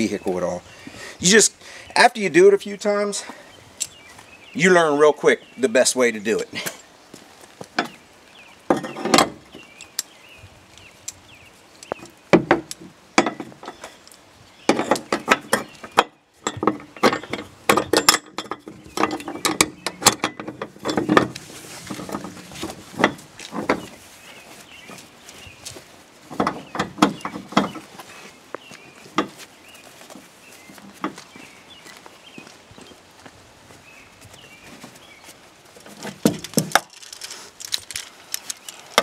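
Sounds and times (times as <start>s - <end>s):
metal hook clinking on rail: 16.4s - 22.4s.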